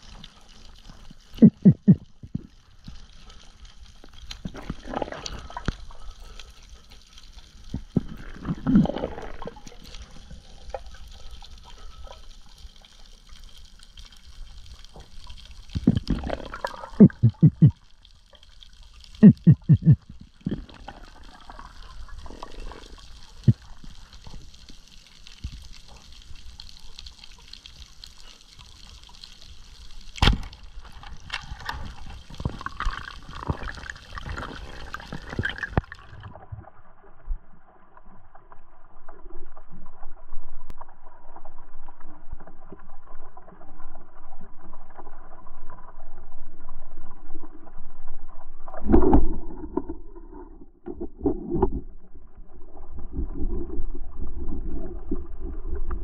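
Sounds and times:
underwater crackling hiss: 19.1 - 30.1.

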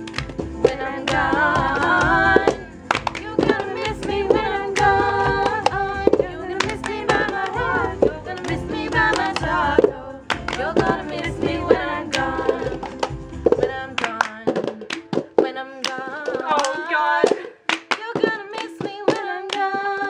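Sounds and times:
woman singing: 0.6 - 20.0
plastic cups tapped and slapped: 12.1 - 20.0.

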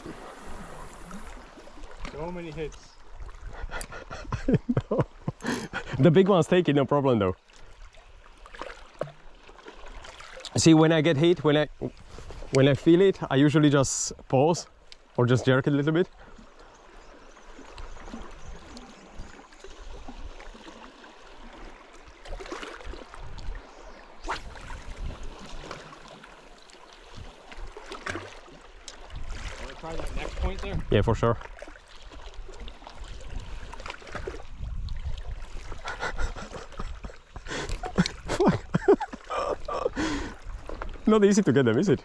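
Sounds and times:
water lapping against rocks: 0.0 - 42.0
wind rumble on microphone: 22.8 - 25.6, 29.1 - 31.4, 32.4 - 38.8.

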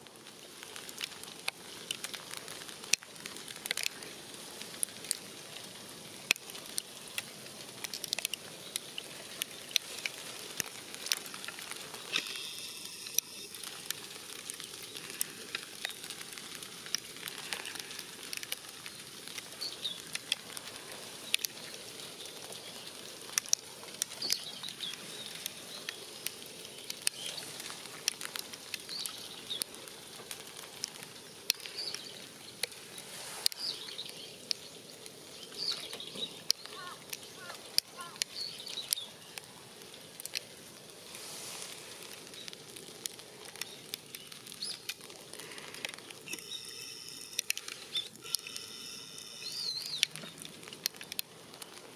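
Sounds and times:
snow pattering: 0.0 - 51.9
soft hiss: 0.0 - 51.9
faint high chirps: 46.3 - 50.1.

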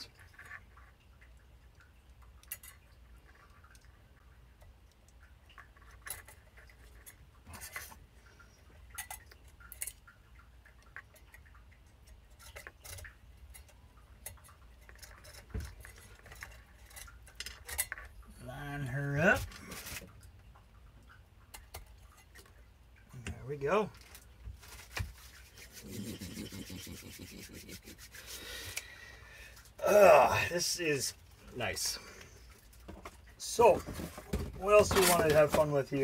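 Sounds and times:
small metallic clicks and clinks: 0.0 - 18.4.

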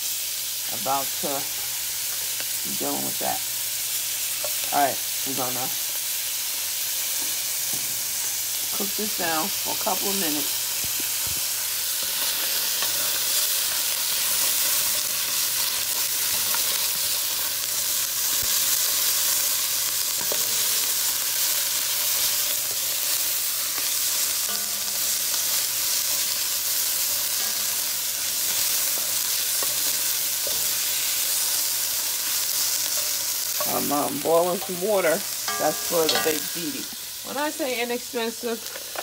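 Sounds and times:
onion sizzling in butter: 0.0 - 39.0
spoon scraping and tapping pot: 35.5 - 36.5.

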